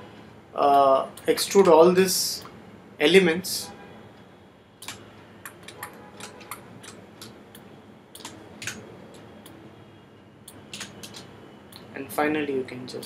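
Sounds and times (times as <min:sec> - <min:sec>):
computer mouse and keyboard clicking: 0:04.8 - 0:09.6, 0:10.5 - 0:11.9.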